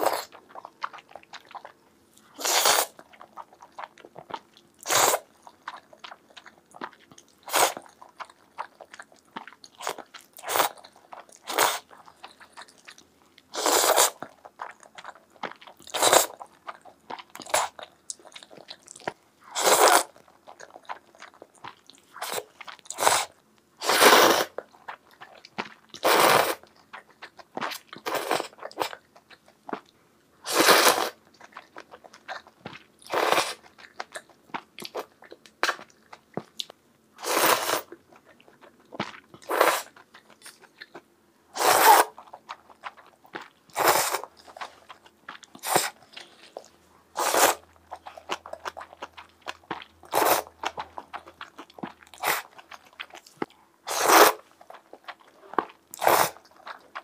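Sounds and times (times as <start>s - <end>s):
noodle slurping: 0.0s - 0.4s, 2.3s - 3.4s, 4.8s - 5.8s, 7.4s - 7.9s, 9.4s - 10.8s, 11.4s - 11.9s, 13.5s - 14.3s, 15.8s - 16.4s, 19.5s - 20.2s, 22.2s - 24.6s, 26.0s - 26.7s, 30.5s - 31.2s, 33.1s - 33.7s, 37.2s - 37.9s, 39.4s - 40.0s, 41.6s - 42.2s, 43.7s - 49.2s, 50.0s - 51.4s, 52.2s - 52.8s, 53.9s - 57.0s
wet chewing and smacking: 0.0s - 23.7s, 24.5s - 30.0s, 31.1s - 36.8s, 37.8s - 41.2s, 42.0s - 57.0s.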